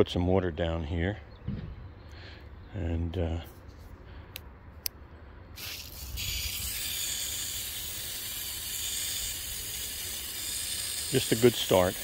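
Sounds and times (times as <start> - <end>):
hose spraying water on lawn: 5.6 - 12.0.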